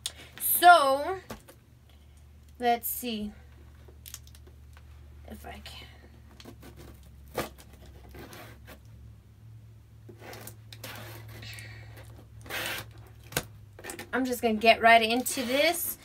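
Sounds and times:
low steady hum: 0.0 - 16.0
fingernails scraping cardboard box: 6.4 - 8.8, 10.2 - 11.4, 12.4 - 13.0
tape tearing rasp: 6.4 - 8.9, 10.1 - 14.1, 15.2 - 16.0.

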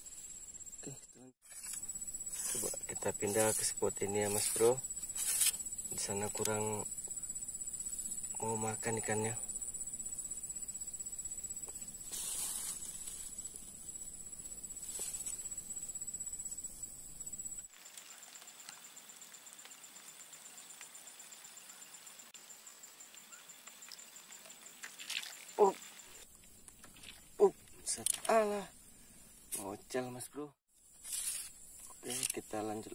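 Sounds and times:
high insect trill: 0.0 - 32.9
soft rustles: 12.0 - 13.6, 14.8 - 15.6.

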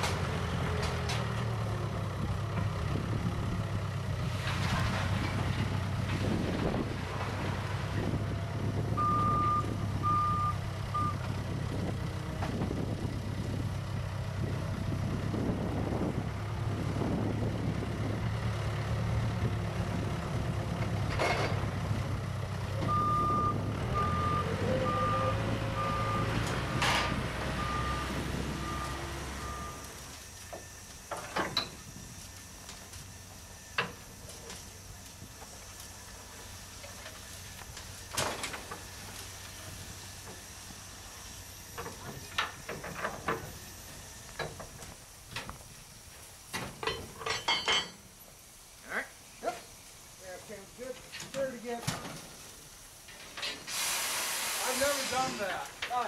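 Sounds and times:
diesel engine running: 0.0 - 46.5
reversing alarm beeping: 9.0 - 11.2, 22.8 - 26.4, 27.5 - 30.0
sharp metallic clanks: 46.8 - 48.0.

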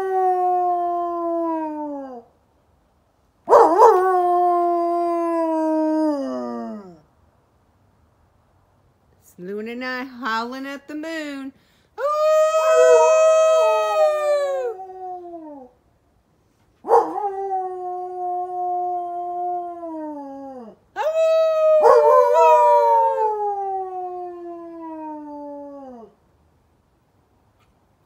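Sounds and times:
dog howling: 12.1 - 15.7.

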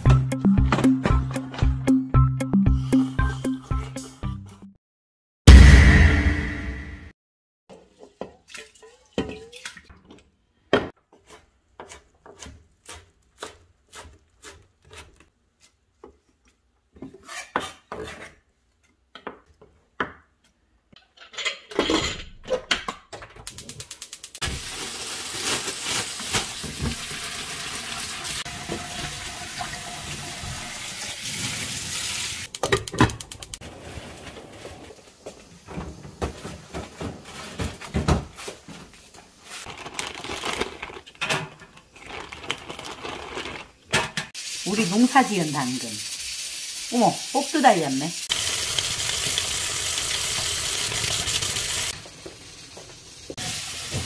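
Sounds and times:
rice washing in metal bowl: 7.7 - 9.9
pots and dishes clattering: 21.0 - 23.3
running tap water: 24.4 - 32.5, 44.4 - 54.0.

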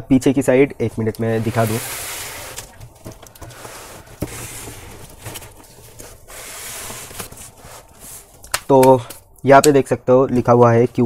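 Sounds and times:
cardboard box scraping on table: 1.3 - 2.8, 3.4 - 8.3.

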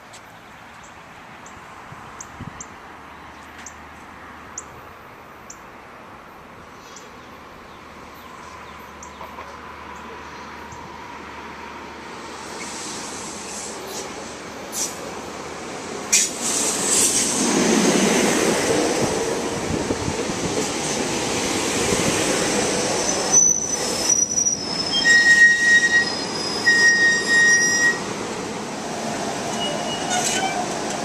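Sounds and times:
train wheels rumbling on rails: 12.0 - 31.0
high-pitched brake squealing: 23.0 - 28.1, 29.5 - 30.8.

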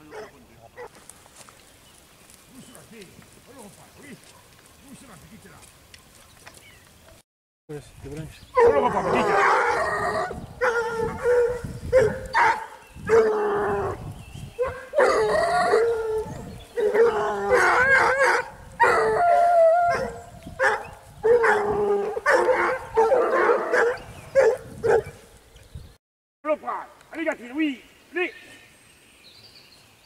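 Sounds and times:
hounds baying and howling: 0.0 - 1.0, 8.5 - 25.3.

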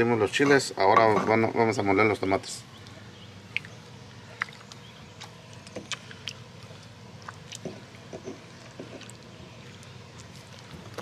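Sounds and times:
wet squishes of crushed tomatoes: 2.8 - 11.0.

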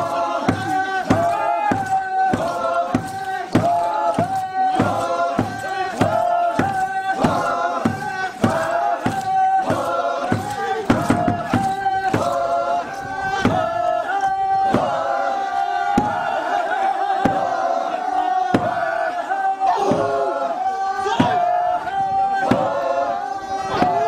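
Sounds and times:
steady beat: 0.0 - 12.5
voices chanting in held notes: 0.0 - 24.0.

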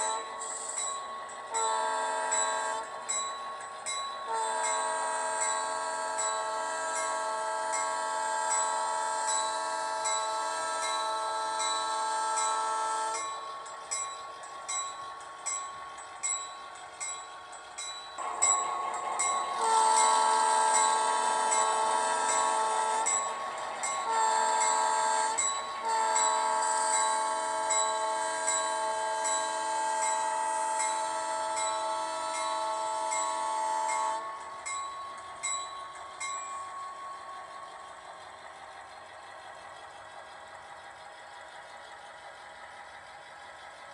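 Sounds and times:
locomotive bell ringing: 0.0 - 43.8
locomotive engine sound: 0.0 - 43.9
multi-chime horn blast: 18.2 - 23.4.

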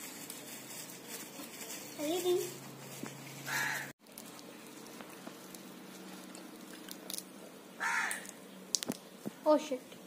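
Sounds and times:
crow cawing: 3.5 - 3.9, 7.8 - 8.4.

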